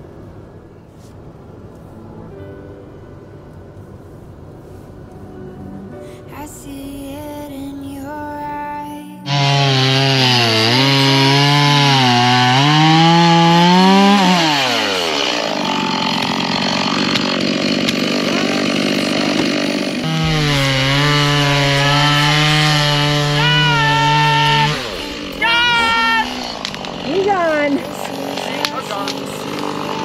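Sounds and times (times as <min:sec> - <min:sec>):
chainsaw cutting wood: 0:09.2 - 0:30.0.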